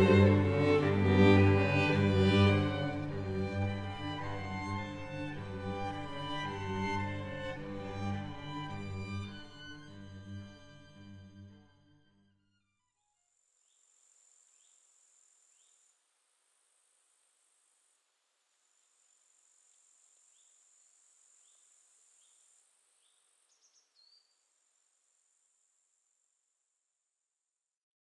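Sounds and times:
string quartet chord: 0:00.0 - 0:12.1.

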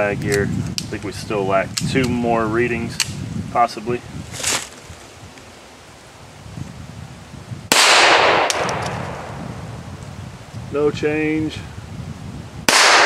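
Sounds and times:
pistol shot with echo: 0:07.7 - 0:09.4, 0:12.7 - 0:13.0.

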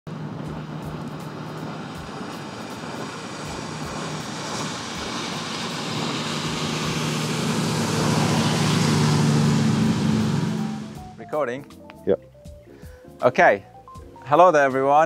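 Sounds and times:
rushing water wash: 0:00.1 - 0:11.2
motorboat engines running: 0:00.1 - 0:11.3.

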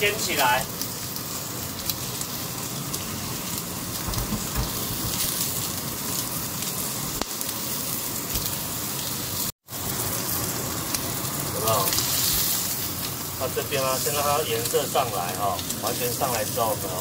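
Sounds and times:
steak sizzling on grill pan: 0:00.0 - 0:17.0.

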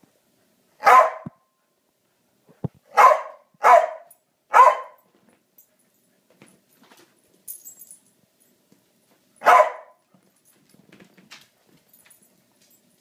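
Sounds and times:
small dog barking: 0:00.8 - 0:01.4, 0:02.9 - 0:05.0, 0:09.4 - 0:10.0.

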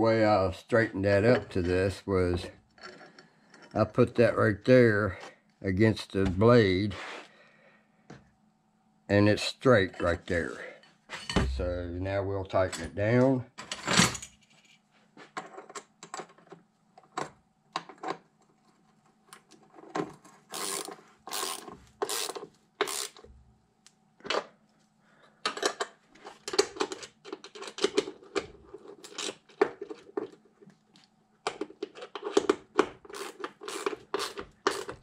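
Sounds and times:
ratchet wrench clicking: 0:20.5 - 0:23.2, 0:33.1 - 0:35.0.

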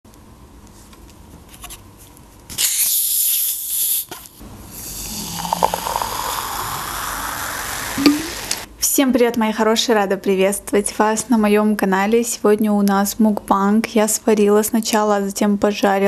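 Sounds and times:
bottle opening gas hiss: 0:02.5 - 0:08.7
soda pouring and fizzing: 0:04.7 - 0:08.7.

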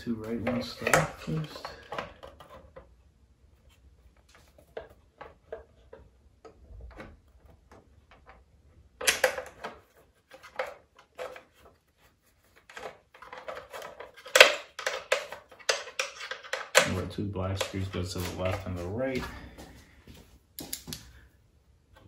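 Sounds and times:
plastic parts clattering: 0:00.1 - 0:03.0, 0:04.2 - 0:11.8, 0:12.5 - 0:19.3.

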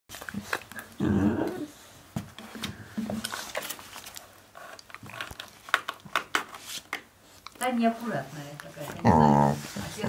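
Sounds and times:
puppies growling: 0:00.3 - 0:02.0, 0:09.0 - 0:10.0.

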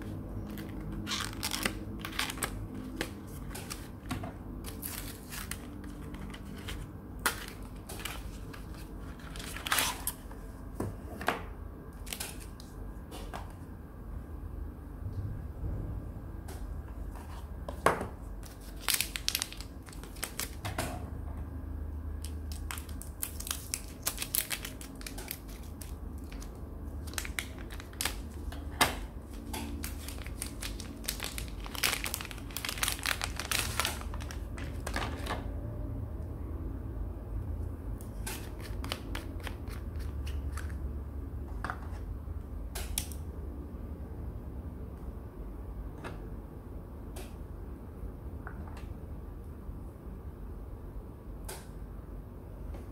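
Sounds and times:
plastic wrapping crinkling: 0:00.4 - 0:04.0, 0:04.6 - 0:10.2, 0:18.4 - 0:20.6, 0:22.2 - 0:35.3.

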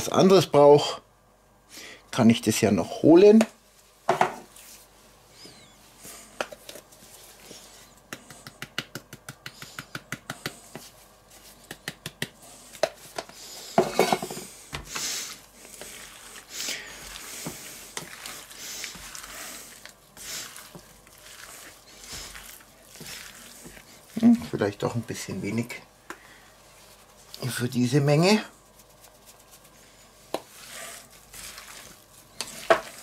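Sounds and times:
meat squishing in a bowl: 0:14.8 - 0:33.0.

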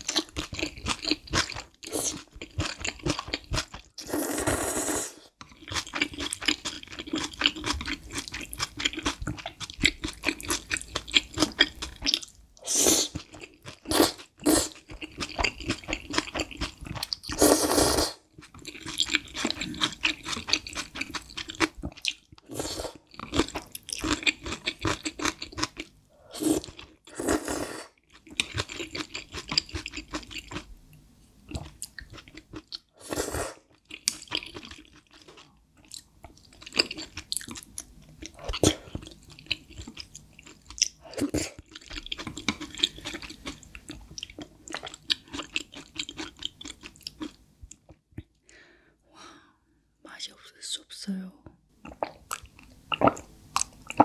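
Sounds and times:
wet chewing: 0:05.4 - 0:12.4, 0:13.0 - 0:17.5, 0:18.4 - 0:25.9, 0:33.7 - 0:47.9.

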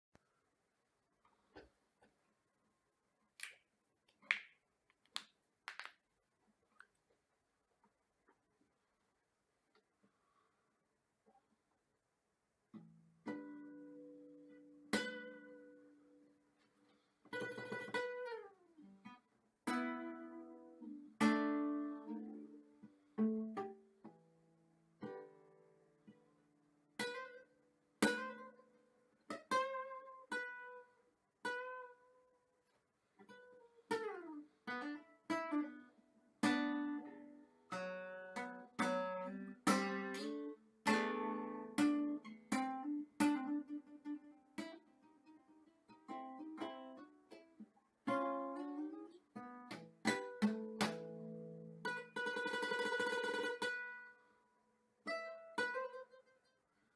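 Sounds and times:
fingerpicked acoustic guitar: 0:12.7 - 0:56.9.

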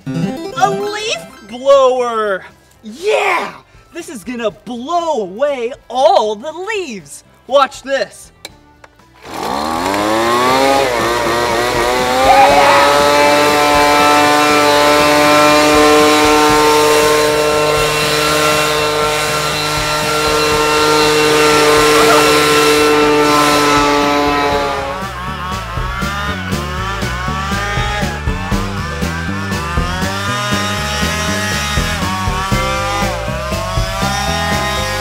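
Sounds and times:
leaf blower running: 0:09.2 - 0:35.0.

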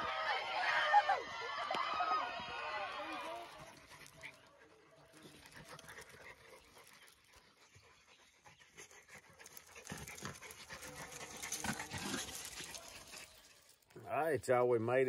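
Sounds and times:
dogs panting: 0:03.1 - 0:14.0.

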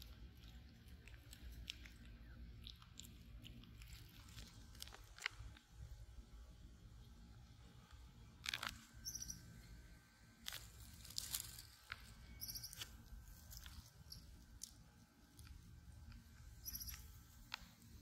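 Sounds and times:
monkey chewing with clicks: 0:00.0 - 0:05.7, 0:10.4 - 0:18.0
monkey high chirps: 0:09.0 - 0:09.5, 0:12.4 - 0:12.9, 0:16.6 - 0:17.2.

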